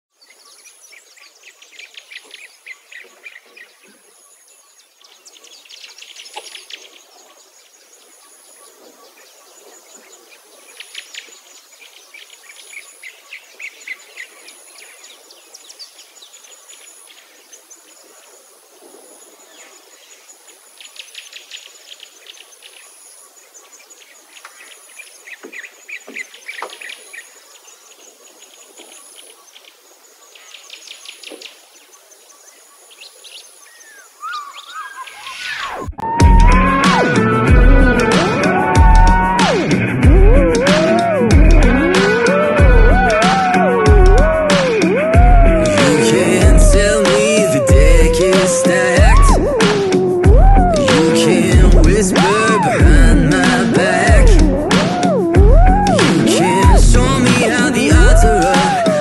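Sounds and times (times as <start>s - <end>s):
birds trilling and chirping: 30.2s - 59.0s.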